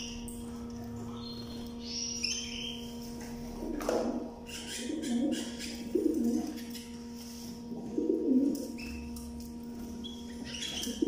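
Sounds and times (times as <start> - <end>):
low hum: 0.0 - 11.0
cage bird chirps: 1.0 - 3.2, 4.4 - 6.8, 8.6 - 9.1, 9.9 - 11.0
pigeon cooing: 3.6 - 6.8, 7.7 - 9.1.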